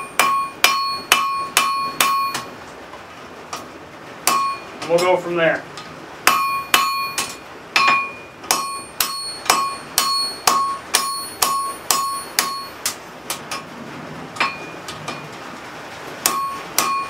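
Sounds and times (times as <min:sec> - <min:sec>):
hammer striking metal on anvil: 0:00.0 - 0:02.5, 0:04.2 - 0:05.2, 0:06.2 - 0:13.6, 0:14.4 - 0:15.3, 0:16.2 - 0:17.0.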